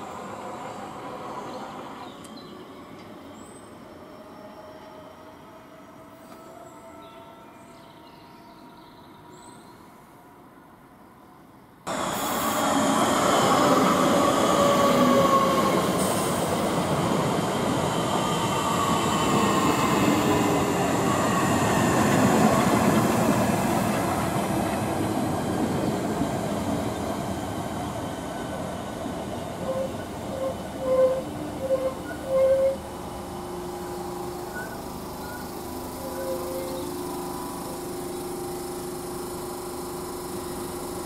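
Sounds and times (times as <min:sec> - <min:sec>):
train wheels rumbling on rail: 0:11.9 - 0:41.0.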